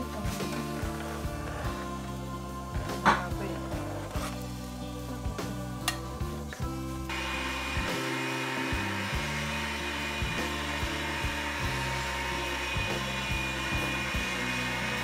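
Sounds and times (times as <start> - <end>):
electric meat grinder whirring: 7.1 - 15.0.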